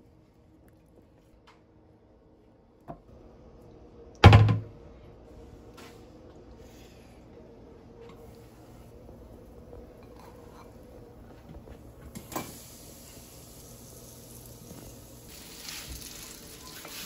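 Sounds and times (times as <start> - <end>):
steady low hum: 0.0 - 15.3
meat sizzling in a pan: 12.3 - 17.0.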